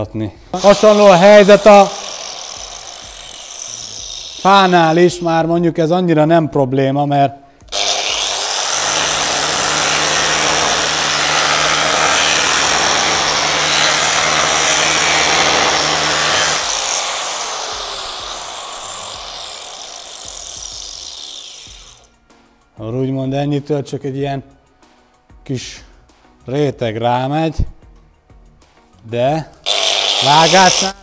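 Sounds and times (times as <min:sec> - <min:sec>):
angle grinder cutting wood: 0:00.6 - 0:05.3, 0:07.7 - 0:22.1, 0:29.6 - 0:31.0.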